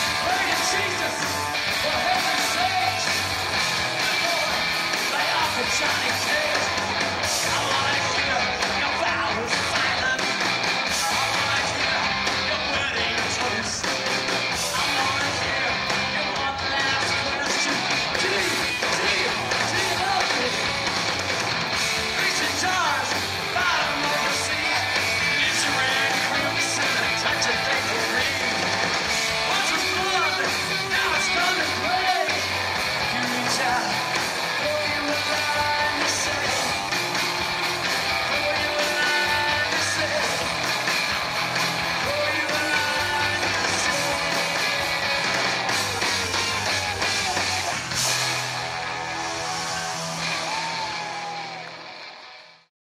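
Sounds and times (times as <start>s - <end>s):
person singing: 0.0s - 20.8s, 22.0s - 48.3s
drums: 0.0s - 52.7s
electric guitar: 0.0s - 52.7s.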